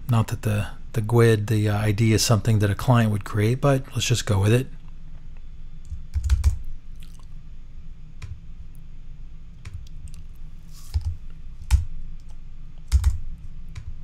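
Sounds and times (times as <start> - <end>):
computer keyboard typing: 5.9 - 6.7, 10.9 - 13.9.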